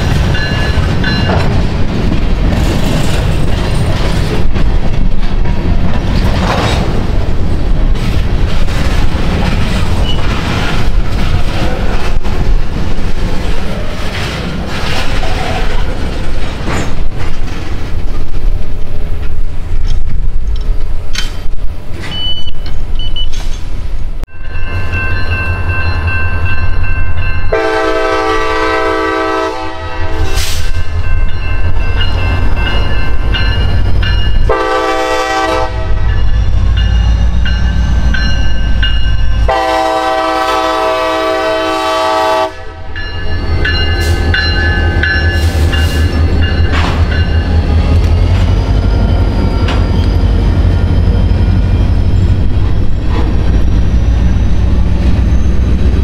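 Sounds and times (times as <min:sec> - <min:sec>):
train running rumble: 0:00.0 - 0:56.0
locomotive air horn blasts: 0:27.5 - 0:30.5, 0:34.5 - 0:36.1, 0:39.4 - 0:43.0.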